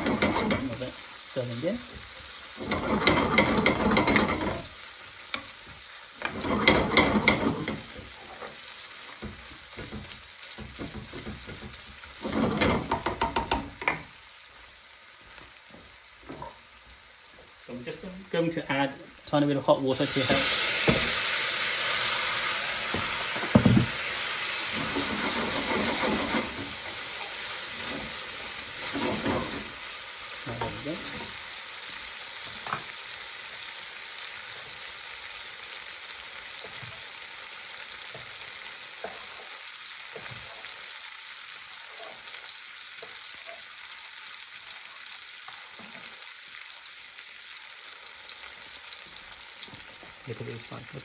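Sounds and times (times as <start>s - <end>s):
sauce sizzling in a pan: 0.0s - 51.0s.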